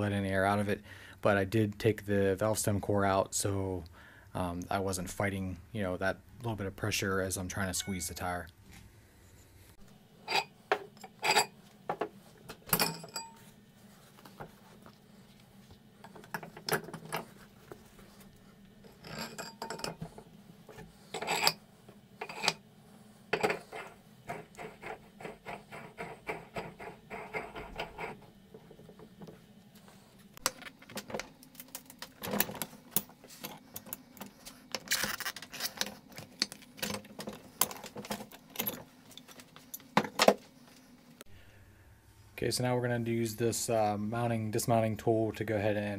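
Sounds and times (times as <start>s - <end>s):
metal parts clicking and clanking: 18.9s - 20.1s, 30.4s - 40.4s.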